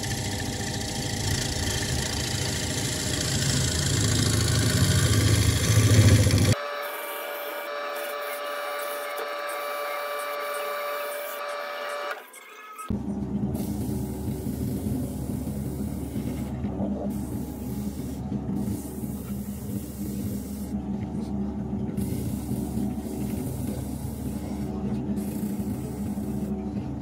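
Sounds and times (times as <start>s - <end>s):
wood lathe whirring: 0.0s - 13.0s.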